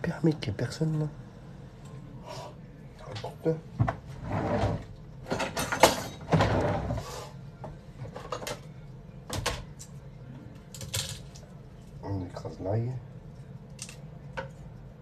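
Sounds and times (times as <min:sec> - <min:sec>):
kitchen knocks and clatters: 0:03.0 - 0:07.0, 0:07.6 - 0:08.7
cupboards opening and shutting: 0:03.8 - 0:07.1.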